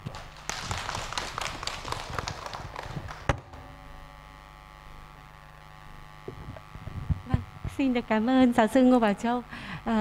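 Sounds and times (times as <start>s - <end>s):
small group applauding: 0.0s - 3.6s
faint steady hum: 0.0s - 10.0s.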